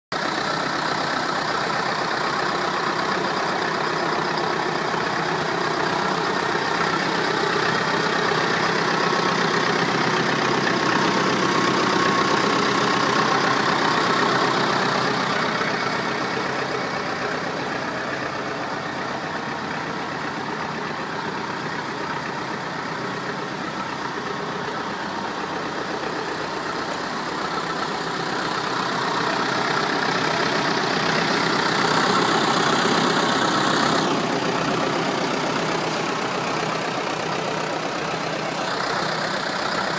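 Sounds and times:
tractor engine idling: 0:00.1 - 0:39.9.

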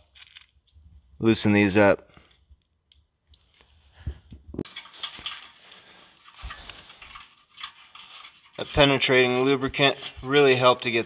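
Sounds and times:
clicks and scraping on metal: 0:04.6 - 0:11.0.

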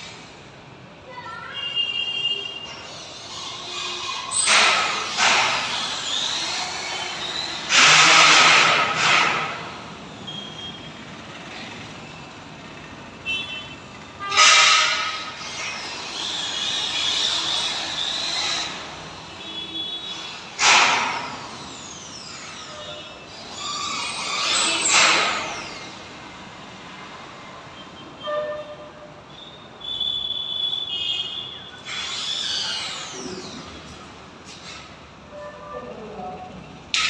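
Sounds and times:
metal scraping bursts: 0:02.6 - 0:10.6, 0:13.9 - 0:28.9, 0:30.9 - 0:36.1.

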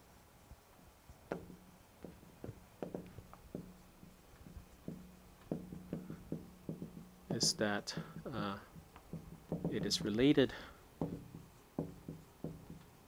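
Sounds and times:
marker writing on whiteboard: 0:02.8 - 0:10.2.

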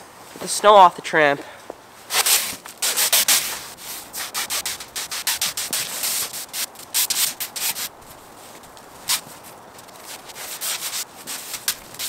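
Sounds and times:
broom sweeping wet snow: 0:02.1 - 0:12.0.

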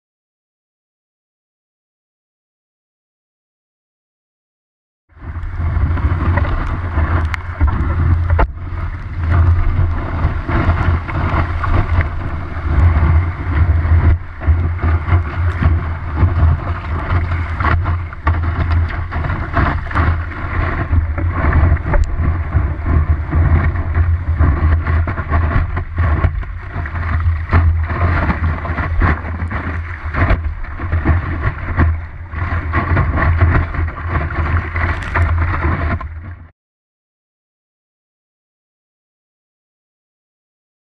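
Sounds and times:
wind rumble: 0:05.1 - 0:36.5
water rushing and hissing: 0:05.3 - 0:22.8.

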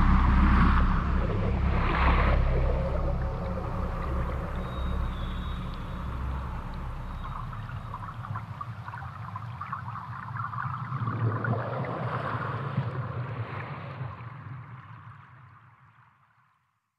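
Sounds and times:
low rumble: 0:00.0 - 0:13.5
churning bubbling water: 0:00.0 - 0:13.6.

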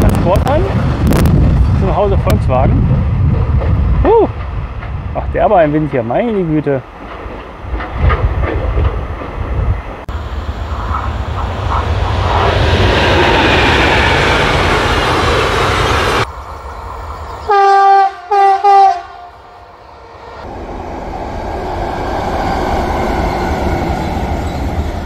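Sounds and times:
wind buffeting microphone: 0:00.0 - 0:16.3
train passing with rushing noise: 0:00.0 - 0:25.0
train horn blasts: 0:17.4 - 0:20.2.

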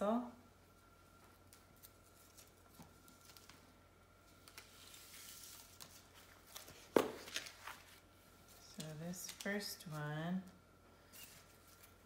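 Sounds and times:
paper and cardboard rustling: 0:04.3 - 0:10.0.

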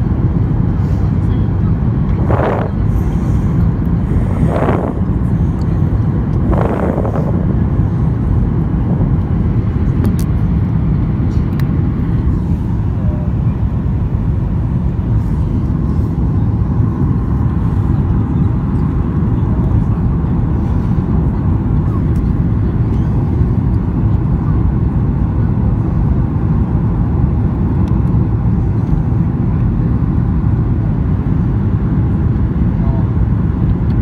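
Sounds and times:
airplane cabin engine roar: 0:00.0 - 0:34.0.

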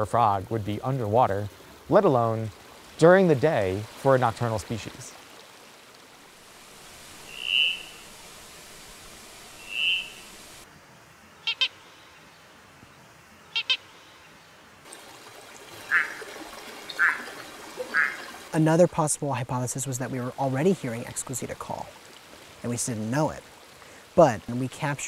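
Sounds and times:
stream hiss: 0:00.0 - 0:25.0
frog clicking calls: 0:07.3 - 0:08.0, 0:09.6 - 0:10.3, 0:11.4 - 0:11.8, 0:13.5 - 0:13.8, 0:15.9 - 0:16.3, 0:16.9 - 0:18.3
high frog peeps: 0:07.3 - 0:08.1, 0:09.6 - 0:10.3, 0:11.4 - 0:11.8, 0:13.5 - 0:13.9, 0:16.9 - 0:18.3
short frog call: 0:07.3 - 0:08.1, 0:09.6 - 0:10.3.

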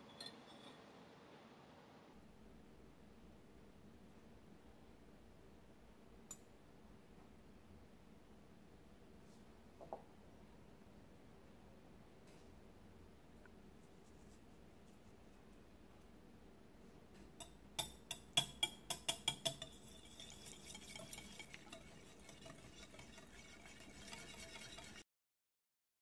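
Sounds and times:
fast clicking whisk: 0:17.4 - 0:25.0
whisk clinking against glass: 0:17.4 - 0:25.0.

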